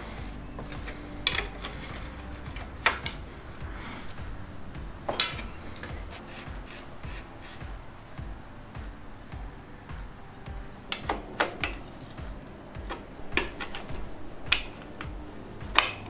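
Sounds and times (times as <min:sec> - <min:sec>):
metal and plastic parts rubbing: 0:00.5 - 0:04.2, 0:05.0 - 0:07.8.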